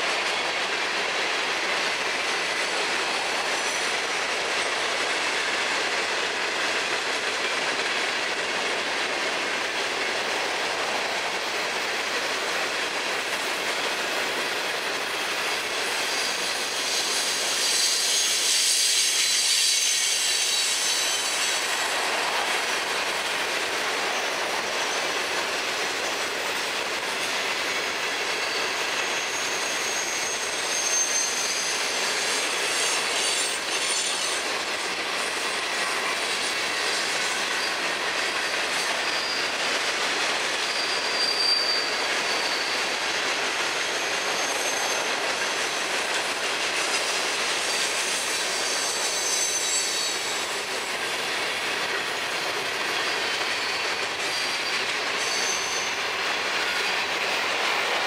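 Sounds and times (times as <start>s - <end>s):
train wheels rattling on rail: 0.0s - 58.0s
high wheel squeals: 15.9s - 22.0s, 27.6s - 34.5s, 35.6s - 39.9s, 40.5s - 43.1s, 43.8s - 46.0s, 47.6s - 51.0s, 51.9s - 57.6s.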